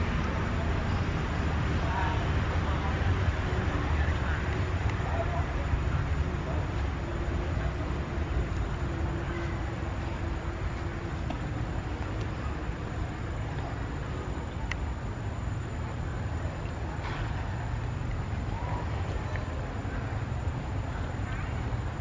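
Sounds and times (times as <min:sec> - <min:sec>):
low outdoor rumble: 0:00.0 - 0:22.0
faint click: 0:14.6 - 0:14.9.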